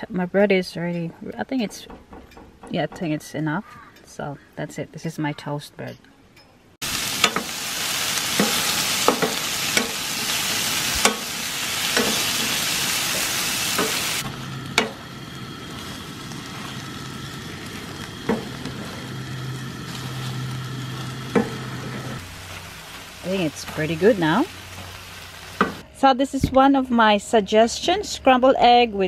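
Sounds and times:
eggs sizzling in a frying pan: 0:06.8 - 0:25.8.

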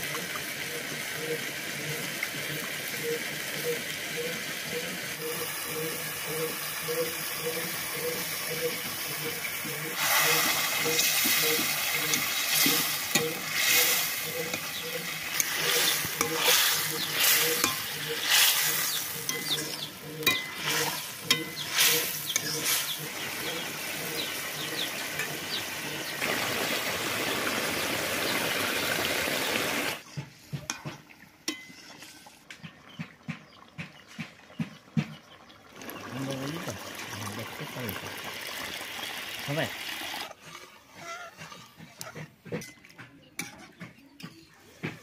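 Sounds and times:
curry sizzling in a wok: 0:00.1 - 0:26.4
metal spatula scraping a pan: 0:08.1 - 0:25.6, 0:40.2 - 0:42.8.

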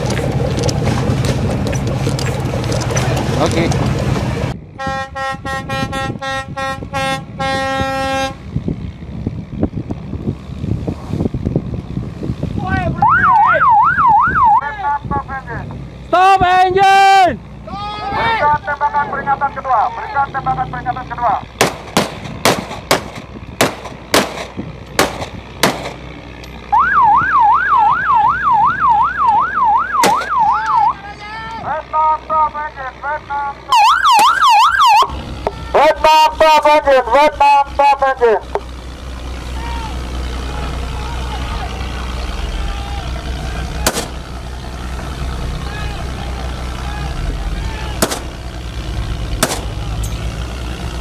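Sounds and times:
boat horn blasts: 0:04.8 - 0:08.6
rough rushing noise: 0:09.6 - 0:13.0, 0:21.6 - 0:26.4, 0:38.5 - 0:51.0
siren yelping: 0:13.0 - 0:14.7, 0:26.7 - 0:31.2, 0:33.7 - 0:36.3
rifle shots: 0:21.6 - 0:26.0, 0:30.0 - 0:30.4, 0:43.8 - 0:44.2, 0:48.0 - 0:48.3, 0:49.4 - 0:49.8.

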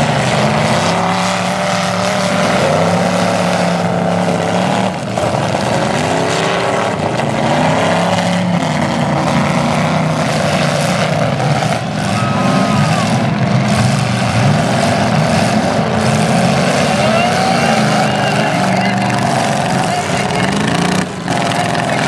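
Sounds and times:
car engines revving hard: 0:00.0 - 0:22.0.

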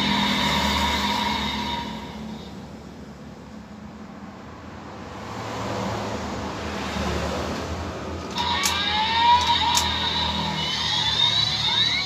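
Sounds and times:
noisy electronic rush: 0:00.0 - 0:02.7, 0:08.3 - 0:12.0
sharp clicks: 0:08.2 - 0:12.0.

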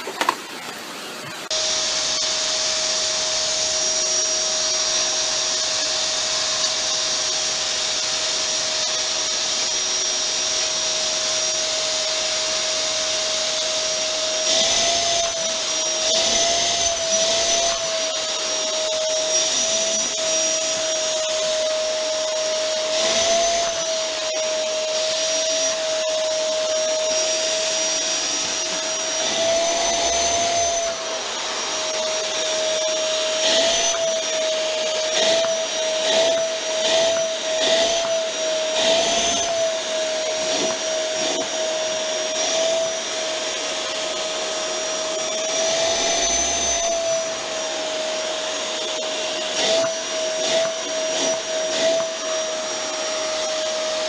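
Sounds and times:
vacuum cleaner running: 0:00.0 - 0:54.0.

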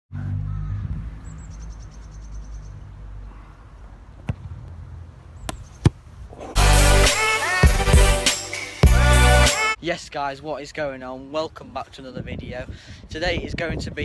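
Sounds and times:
football kick thuds: 0:04.2 - 0:04.6.

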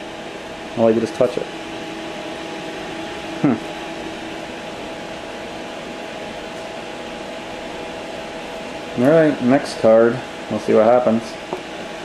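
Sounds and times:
computer fan hum with steady tones: 0:00.0 - 0:12.0
short voice sound: 0:03.4 - 0:03.7.

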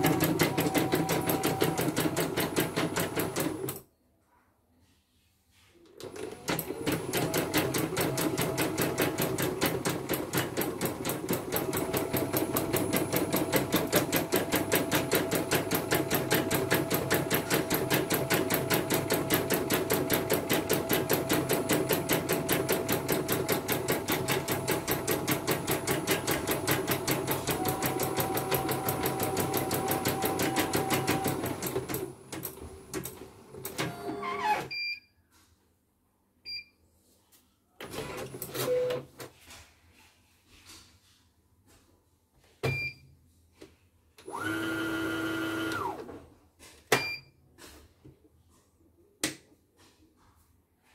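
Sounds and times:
embroidery machine stitching: 0:00.0 - 0:03.8, 0:06.0 - 0:34.7, 0:44.2 - 0:46.1.

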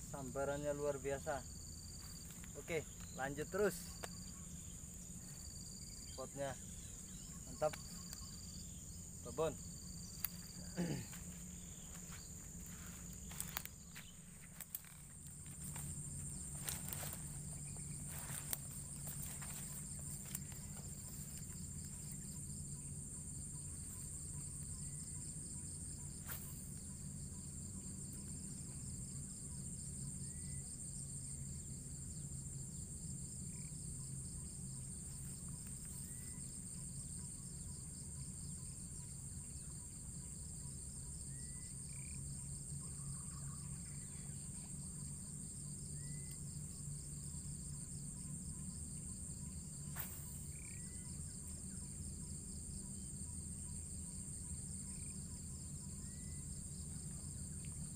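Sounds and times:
insects chorus: 0:00.0 - 0:57.9
low hum: 0:01.4 - 0:38.9.

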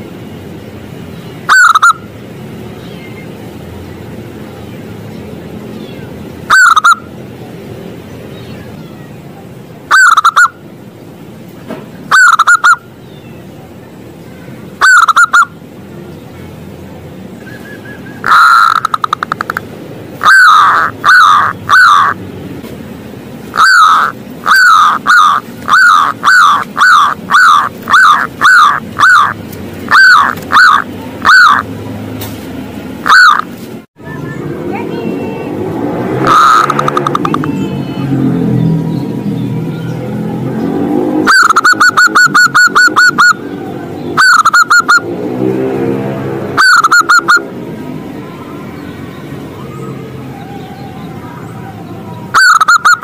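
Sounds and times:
dove cooing: 0:12.1 - 0:12.8, 0:14.8 - 0:15.5, 0:20.2 - 0:22.2, 0:23.6 - 0:31.7, 0:36.2 - 0:37.5, 0:41.2 - 0:43.4, 0:46.6 - 0:47.4, 0:50.9 - 0:53.0.

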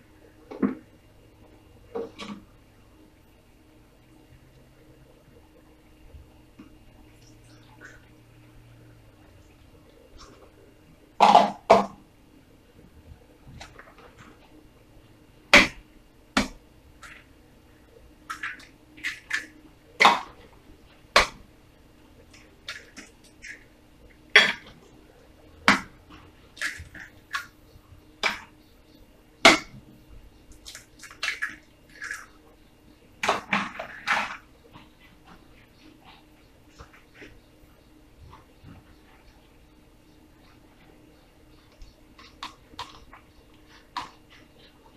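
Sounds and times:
eggshell crackling: 0:16.4 - 0:21.4, 0:30.4 - 0:32.7, 0:40.6 - 0:44.9.

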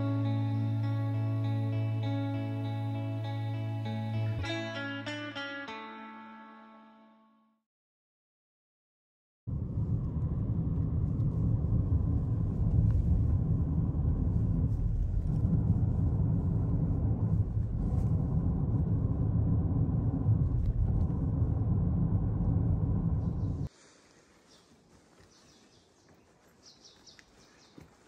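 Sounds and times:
steady low rumble: 0:09.5 - 0:23.7.

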